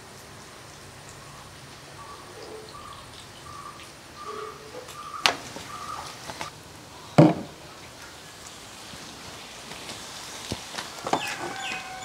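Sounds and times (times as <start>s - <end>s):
bird calling: 1.2s - 8.4s, 10.8s - 12.0s
chicken frying in oil: 7.7s - 12.0s.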